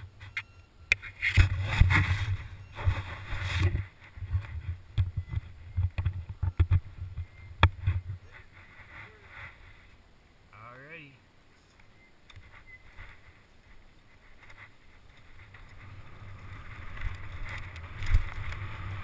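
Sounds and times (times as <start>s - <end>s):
bike knocking and rattling: 0.0s - 9.0s, 14.2s - 19.0s
rough rubbing on microphone: 1.0s - 4.8s, 7.8s - 10.0s.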